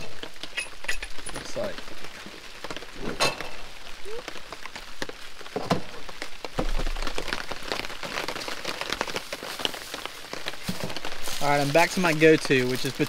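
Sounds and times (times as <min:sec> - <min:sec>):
rain pattering on tarp: 0:00.0 - 0:13.0.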